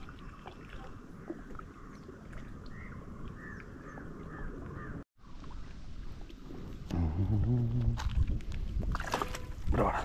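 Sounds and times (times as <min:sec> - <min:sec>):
birds chirping: 0:00.2 - 0:05.0.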